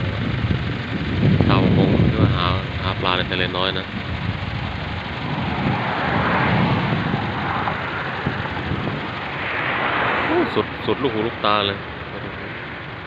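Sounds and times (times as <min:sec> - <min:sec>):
road traffic passing: 0:00.0 - 0:13.0.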